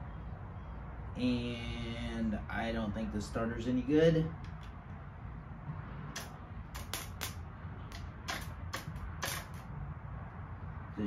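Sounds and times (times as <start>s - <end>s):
sharp clicks of wires: 6.1s - 9.7s.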